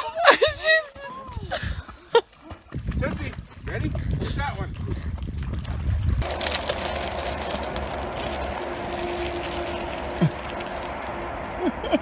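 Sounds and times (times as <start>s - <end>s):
rushing rumble and hiss: 6.2s - 12.0s.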